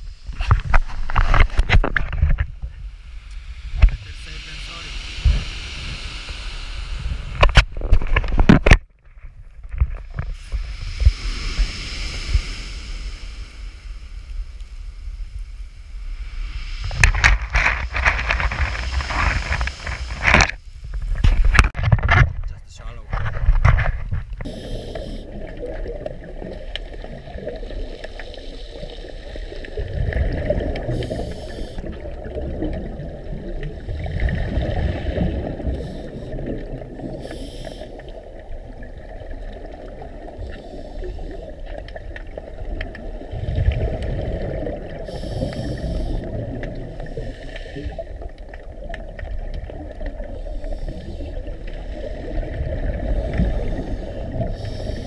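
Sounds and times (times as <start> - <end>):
muffled underwater rumble: 0.0 - 55.0
exhaled bubbles gurgling: 24.4 - 55.0.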